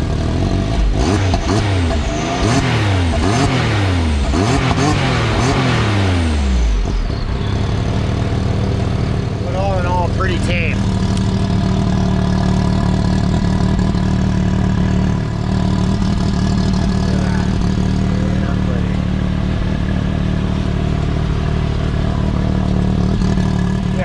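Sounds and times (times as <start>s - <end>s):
engine idling: 0.0s - 24.0s.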